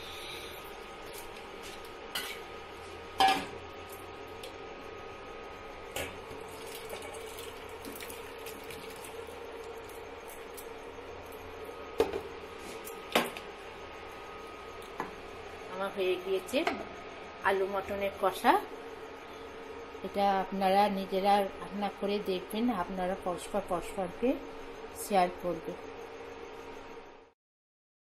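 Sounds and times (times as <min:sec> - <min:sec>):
pan and steel bowl clanking: 0:03.2 - 0:03.5.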